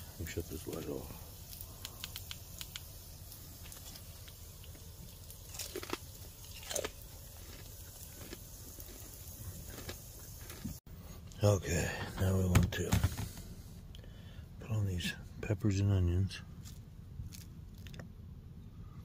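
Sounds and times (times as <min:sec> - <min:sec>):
person chewing: 0:05.5 - 0:10.8, 0:16.7 - 0:18.1.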